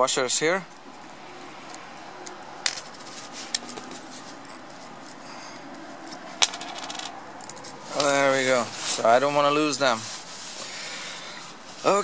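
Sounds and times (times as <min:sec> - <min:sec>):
metal washers clicking: 0:06.0 - 0:07.8.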